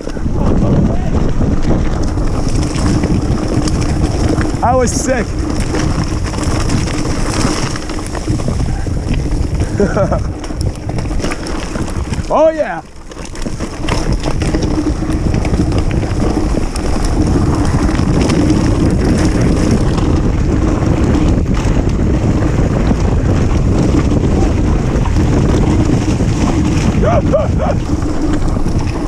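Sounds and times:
bike knocking over rough ground: 0.0 - 29.0
bike tyres rumbling on dirt: 0.0 - 29.0
wind buffeting microphone: 0.0 - 29.0.

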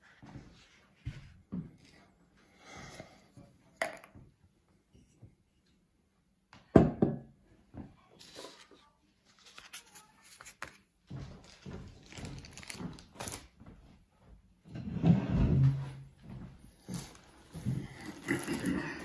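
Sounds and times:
glass bottle thunk on wooden table: 6.8 - 7.3.

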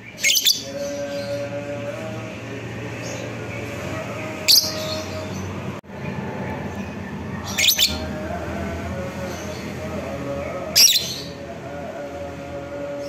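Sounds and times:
shrill bird calls: 7.5 - 8.0.

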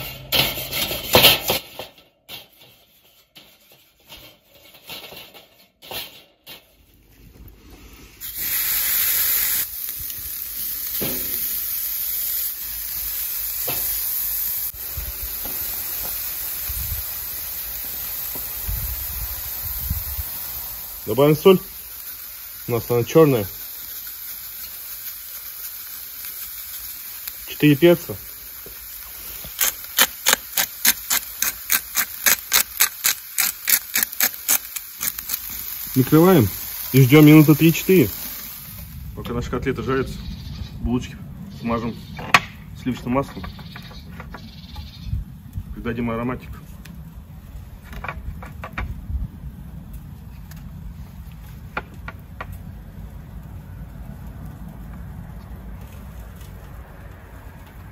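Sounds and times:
meat sizzling on a grill: 7.9 - 40.5
pepper grinder clicking: 29.5 - 35.6.

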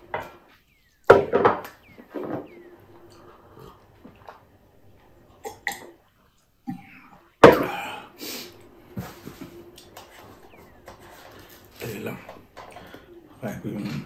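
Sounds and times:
person coughing: 6.7 - 8.2.

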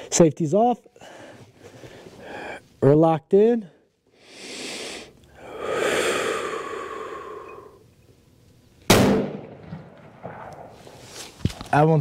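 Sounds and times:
breathy exhale: 4.2 - 7.8
rifle shot: 8.9 - 11.0.

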